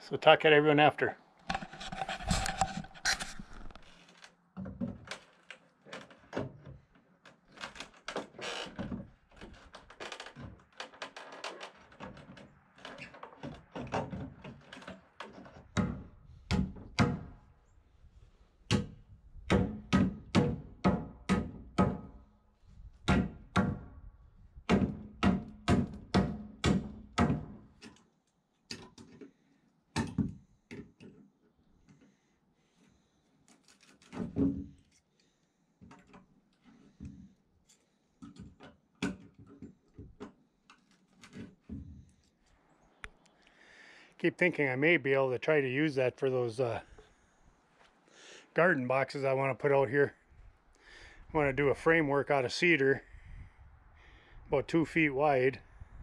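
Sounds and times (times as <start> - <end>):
hammer blows on wooden boards: 18.7 - 22.2, 23.0 - 23.9, 24.6 - 27.6.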